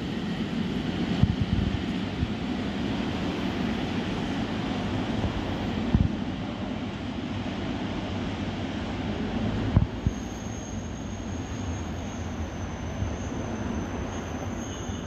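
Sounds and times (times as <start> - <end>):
high steady squeal: 10.0 - 15.0.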